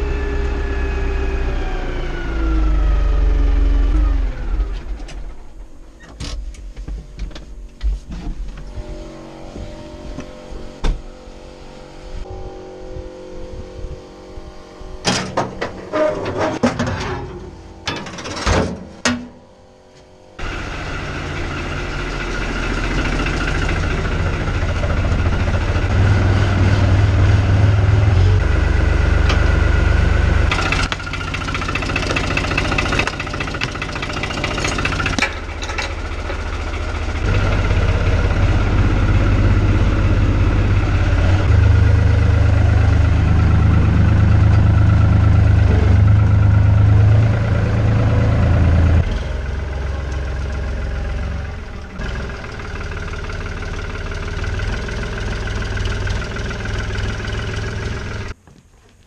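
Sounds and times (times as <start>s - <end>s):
tractor diesel engine running: 0.0s - 19.3s, 20.1s - 58.4s.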